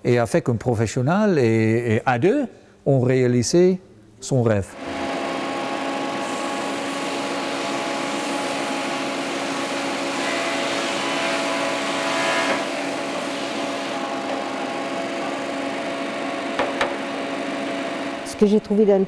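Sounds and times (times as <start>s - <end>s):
belt sander humming: 4.8s - 19.0s.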